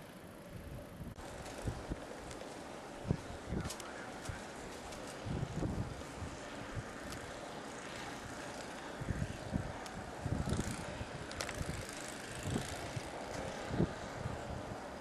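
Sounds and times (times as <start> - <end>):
wind buffeting microphone: 0.6 - 15.0.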